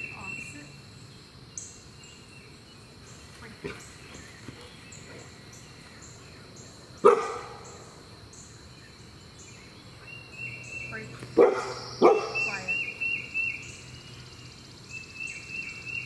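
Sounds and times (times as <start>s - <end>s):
puppy barking: 7.0s - 7.6s, 11.4s - 12.5s.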